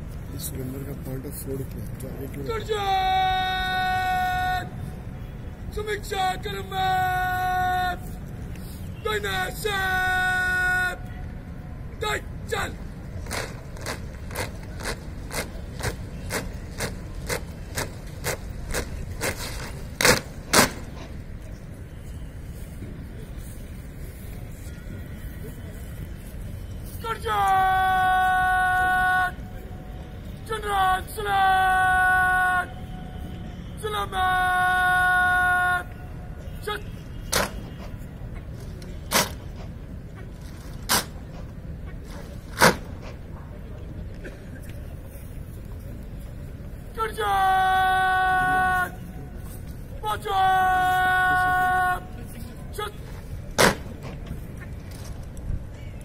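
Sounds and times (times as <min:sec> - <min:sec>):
marching boots in unison: 0:13.2 - 0:21.2.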